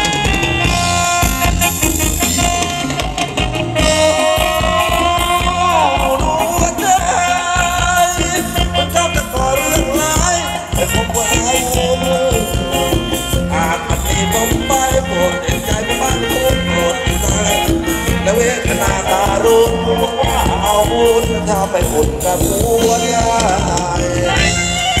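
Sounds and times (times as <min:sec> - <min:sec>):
live band dance music: 0:00.0 - 0:25.0.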